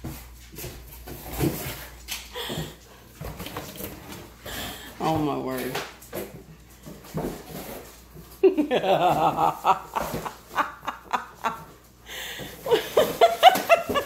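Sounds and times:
woman laughing: 8.4s - 11.8s, 12.5s - 14.0s.

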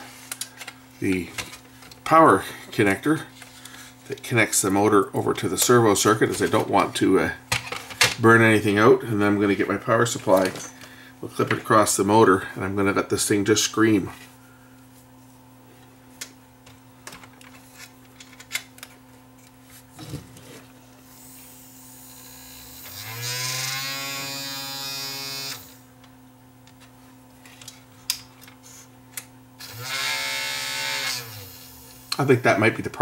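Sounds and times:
small motor whining: 22.0s - 25.8s, 29.6s - 31.8s.

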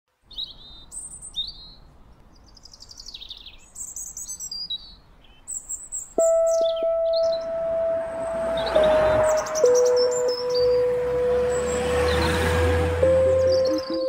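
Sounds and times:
songbirds chirping and singing: 0.3s - 14.0s.

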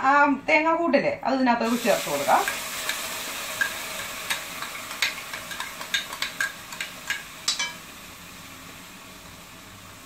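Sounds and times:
faint sizzle from a pan: 1.6s - 10.0s
spoon clinking on a bowl: 5.0s - 7.8s.

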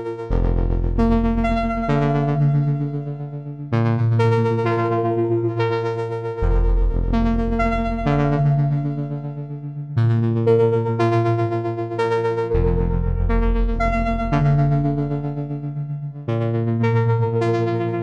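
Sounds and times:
low synth bass note: 6.4s - 9.5s.

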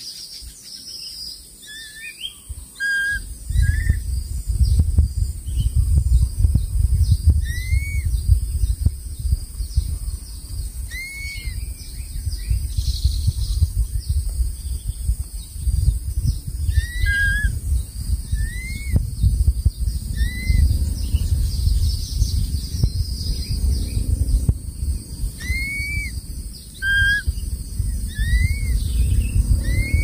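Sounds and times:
eagle whistled calls: 1.6s - 4.0s, 7.3s - 8.3s, 10.8s - 14.1s, 16.6s - 19.0s, 20.0s - 21.2s, 25.4s - 30.0s
low rumble: 2.5s - 30.0s.

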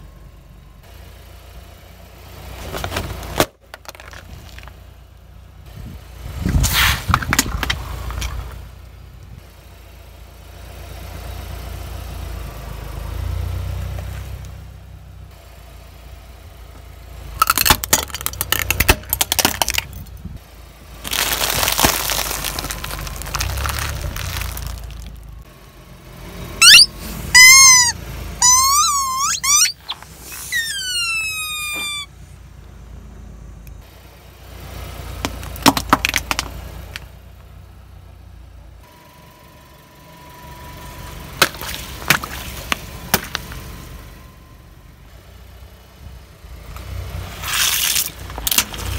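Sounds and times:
low engine rumble: 0.0s - 48.9s
plastic toys cracking under tyre: 2.8s - 4.8s, 7.0s - 8.4s, 17.4s - 20.1s, 21.0s - 25.2s, 35.2s - 37.1s, 41.4s - 43.5s, 47.5s - 48.9s
rubber squeeze toys squeaking: 26.6s - 32.2s.

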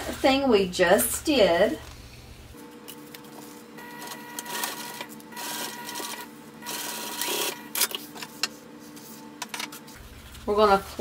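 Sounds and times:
sewing machine motor hum: 3.3s - 8.0s.

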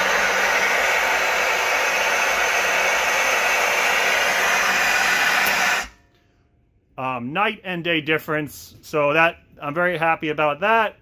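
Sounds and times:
steam hissing: 0.0s - 5.9s.

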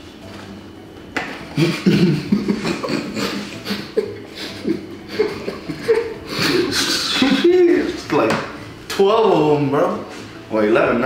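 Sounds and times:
men laughing: 1.5s - 7.9s.

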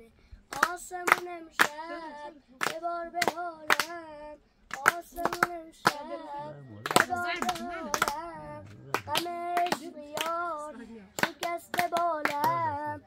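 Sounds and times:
sharp hand claps: 0.5s - 1.8s, 2.6s - 4.0s, 4.7s - 6.2s, 6.8s - 10.4s, 11.2s - 12.9s
high voice singing: 11.4s - 13.0s.

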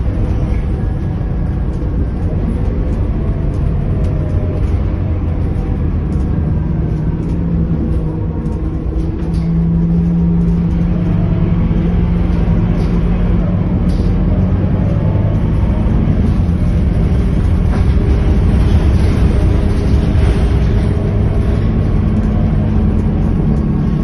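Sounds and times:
bus diesel engine drone: 0.0s - 24.0s
road rumble: 0.0s - 24.0s.

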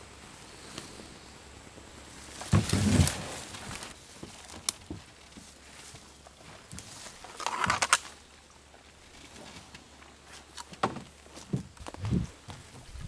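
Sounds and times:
rustling: 2.0s - 13.0s
heavy footsteps thumping: 10.8s - 13.0s.

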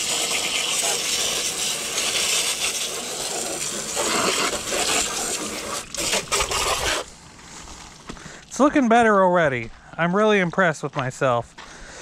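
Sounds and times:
hose nozzle spraying water: 0.0s - 7.2s.

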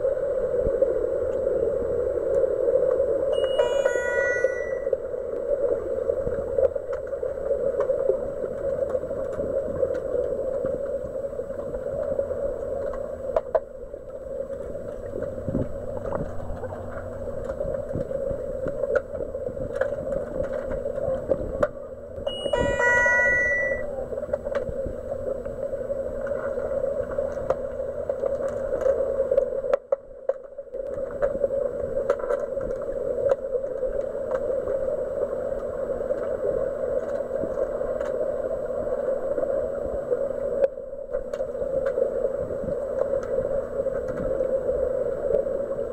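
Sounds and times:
steady underwater hum: 0.0s - 45.9s
electronic warbling signal: 3.4s - 5.0s, 22.3s - 23.9s.

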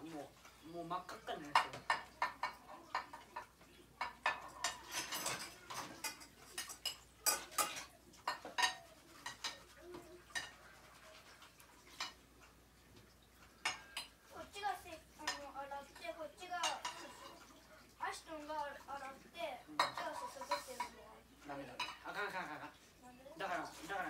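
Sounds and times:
dishes clinking in a sink: 0.9s - 14.6s, 15.2s - 17.7s, 19.7s - 22.8s.

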